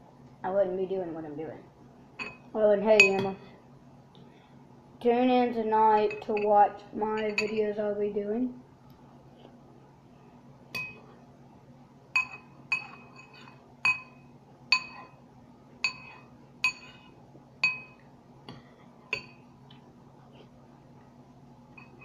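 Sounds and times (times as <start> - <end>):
metal spoon clinking on bowl: 7.2 - 7.7, 12.2 - 15.1, 15.8 - 17.0, 17.6 - 18.0, 21.8 - 22.0.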